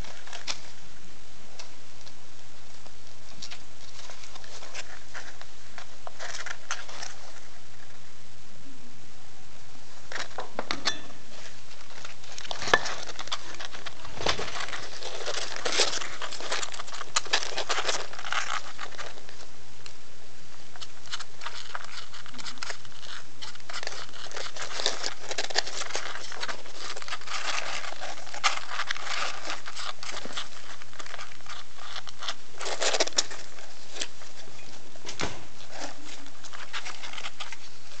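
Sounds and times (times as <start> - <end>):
faint low hum: 0.0 - 38.0
rustling of bedding and fur: 20.7 - 38.0.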